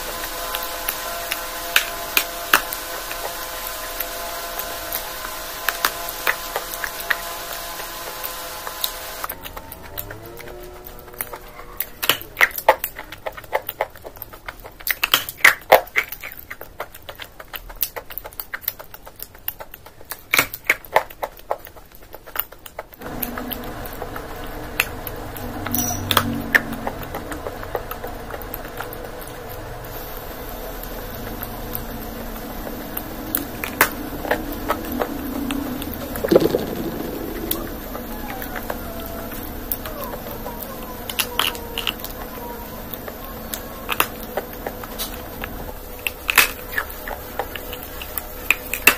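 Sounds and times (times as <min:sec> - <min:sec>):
crunchy chewing: 0:00.0 - 0:48.9
steady low hum: 0:23.0 - 0:48.9.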